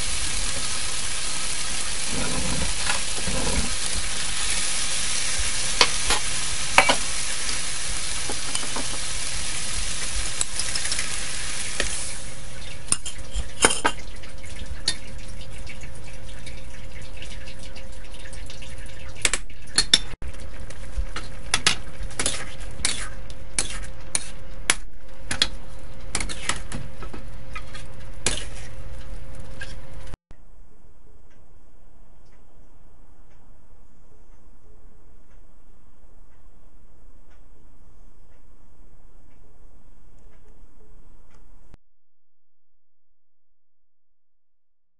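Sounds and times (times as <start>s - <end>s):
food sizzling in a wok: 0.0s - 12.9s
metal spatula scraping a wok: 1.9s - 4.0s, 22.2s - 24.4s.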